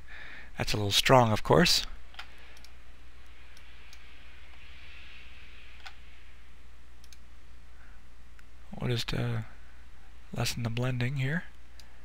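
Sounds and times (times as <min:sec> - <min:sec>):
low electrical hum: 0:00.0 - 0:12.0
computer mouse clicks: 0:02.1 - 0:04.6, 0:05.8 - 0:06.0, 0:07.0 - 0:07.2.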